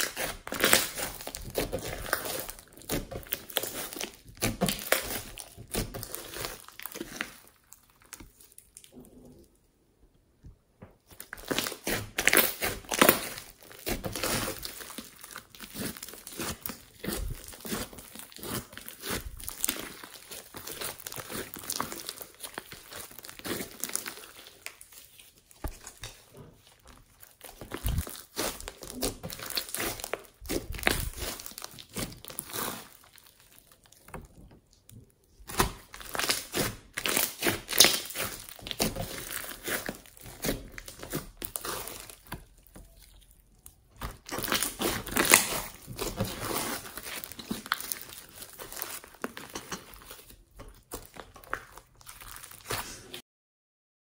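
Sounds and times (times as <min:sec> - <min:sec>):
slime crackling and popping: 0:00.0 - 0:09.4, 0:11.0 - 0:53.1.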